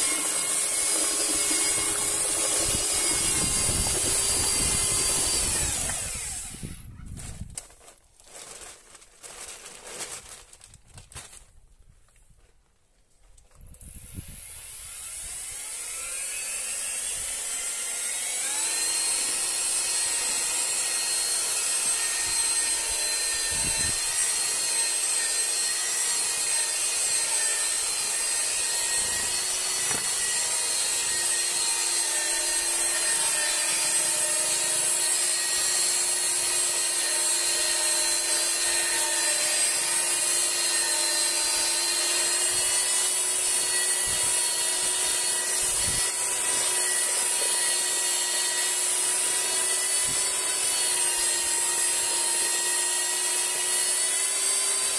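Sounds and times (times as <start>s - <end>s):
paddle mixer motor whine: 0.0s - 6.8s.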